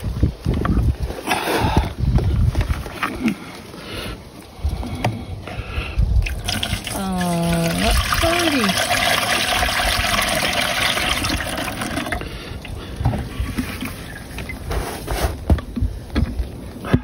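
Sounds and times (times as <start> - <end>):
liquid pouring through funnel: 6.2 - 14.0.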